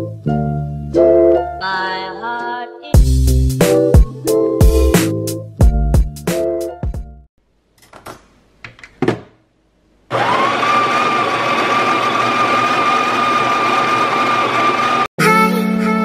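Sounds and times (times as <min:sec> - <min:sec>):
coffee grinder whining: 0:10.1 - 0:15.1.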